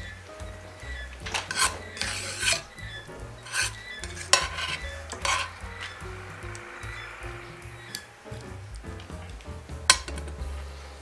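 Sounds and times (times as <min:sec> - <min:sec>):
metal tongs scraping a pan: 0:01.2 - 0:06.0.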